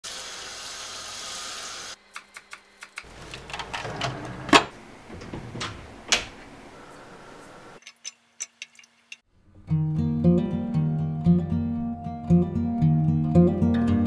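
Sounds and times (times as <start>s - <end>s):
drawer being pulled open: 3.1s - 5.9s.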